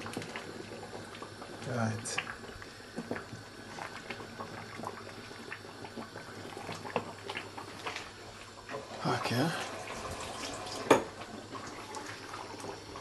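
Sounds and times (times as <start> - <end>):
stew bubbling: 0.0 - 13.0.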